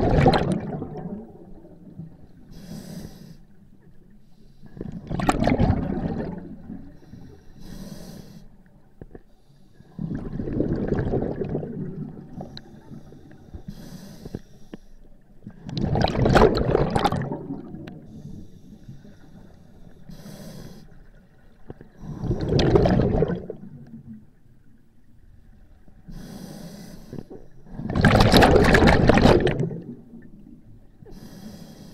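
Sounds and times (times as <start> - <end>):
bubbling underwater exhalations: 0.0 - 1.5, 4.9 - 6.6, 9.9 - 12.3, 15.6 - 18.0, 22.0 - 23.8, 27.8 - 30.1
faint regulator inhalation hiss: 2.3 - 4.8, 6.8 - 10.0, 12.3 - 15.2, 18.0 - 21.2, 26.0 - 27.6, 31.0 - 31.9.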